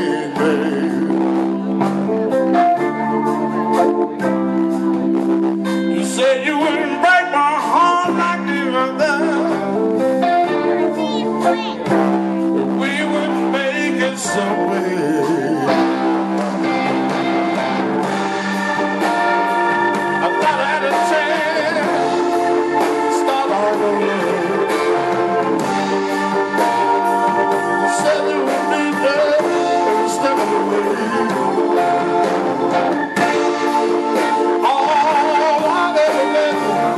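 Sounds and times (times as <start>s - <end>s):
man singing: 0.0s - 1.9s, 5.9s - 9.8s, 10.8s - 16.2s, 20.2s - 25.6s, 27.8s - 32.3s, 34.2s - 36.9s
electric blues guitar: 0.0s - 36.9s.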